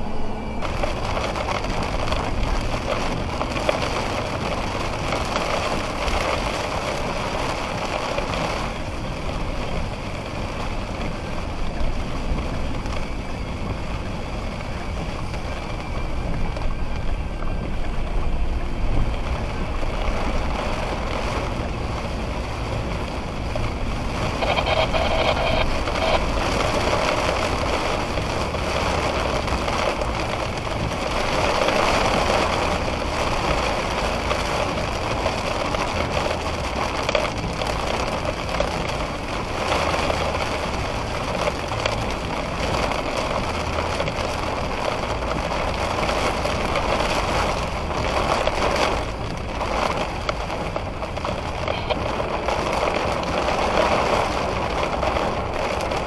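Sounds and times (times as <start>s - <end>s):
heavy rain pouring: 0.0s - 56.0s.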